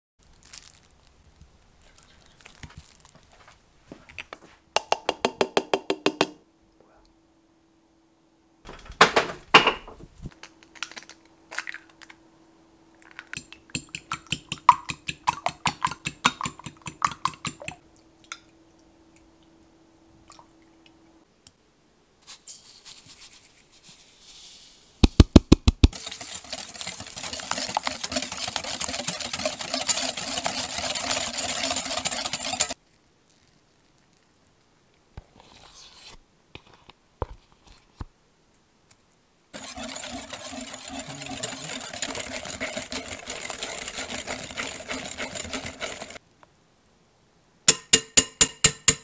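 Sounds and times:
kitchen utensils clicking: 13.2 - 17.8, 26.0 - 32.8, 39.6 - 46.2
whisk beating in glass bowl: 13.4 - 17.8, 25.6 - 32.8, 39.6 - 46.2.

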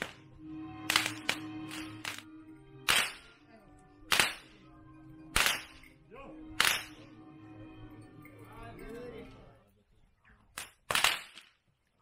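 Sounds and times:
whip cracking: 0.0 - 0.2, 0.8 - 2.2, 2.8 - 3.3, 4.1 - 4.6, 5.4 - 5.8, 6.6 - 7.0, 10.6 - 11.6.

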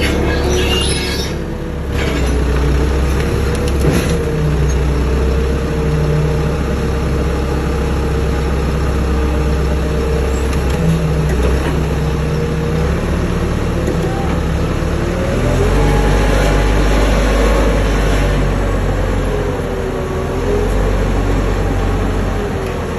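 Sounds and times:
hydraulic whine: 0.0 - 2.5
engine running: 0.0 - 22.9.

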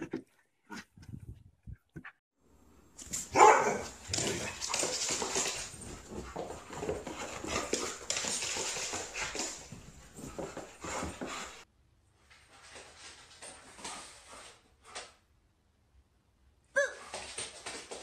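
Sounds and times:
dog barking and whining: 3.2 - 4.8.

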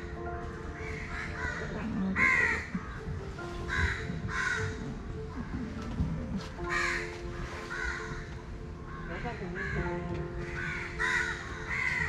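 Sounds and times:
soft background music: 0.0 - 12.0
crows cawing: 0.1 - 5.8, 6.6 - 12.0.

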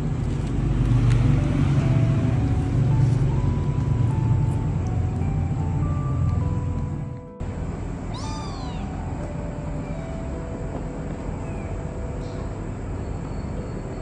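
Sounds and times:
kitten meowing: 8.0 - 10.2, 11.4 - 11.8.

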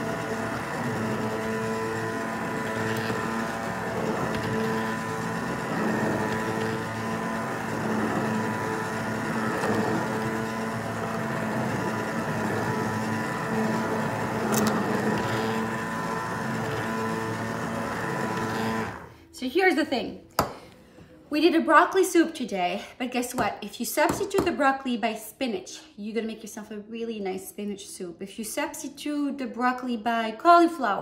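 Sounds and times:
liquid churning: 0.0 - 19.1
immersion blender motor whirring: 0.0 - 19.2.

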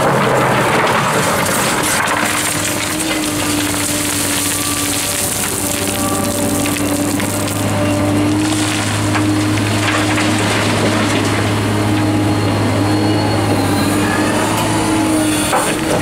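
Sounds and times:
gravel pouring into truck bed: 0.0 - 11.6
excavator diesel engine humming: 0.0 - 16.0.

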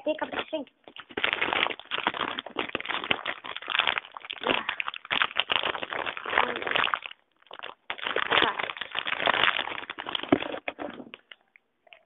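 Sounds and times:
handling noise rustling: 9.4 - 11.4.

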